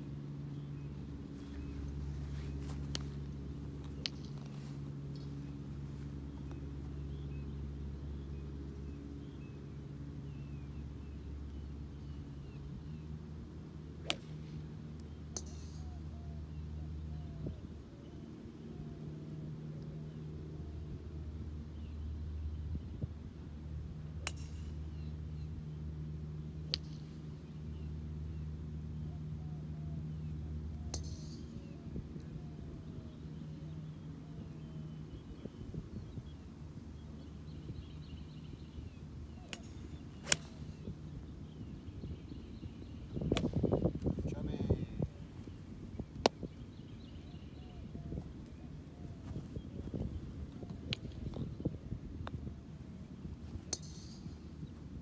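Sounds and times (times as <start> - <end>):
low hum: 0.0 - 55.0
golf club striking ball: 39.5 - 41.6, 53.6 - 54.3.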